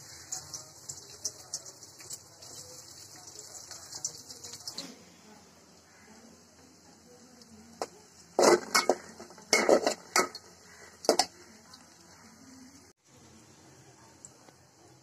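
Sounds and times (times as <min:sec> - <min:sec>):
metal spoon scraping pot: 0:08.4 - 0:11.4.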